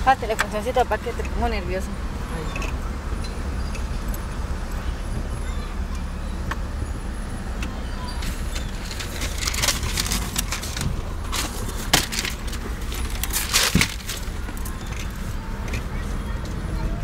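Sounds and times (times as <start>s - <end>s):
car engine rumbling: 0.0s - 17.0s
objects being handled: 8.2s - 16.6s.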